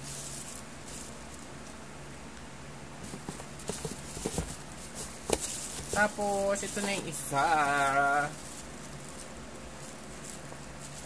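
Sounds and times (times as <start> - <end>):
low room hum: 0.0 - 11.0
knocks and taps on cardboard box: 3.0 - 6.1.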